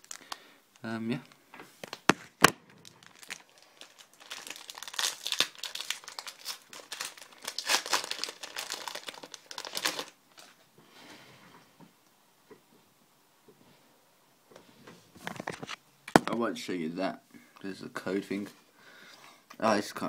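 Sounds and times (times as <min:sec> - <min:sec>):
card pack wrapper tearing: 0:01.8 - 0:10.5.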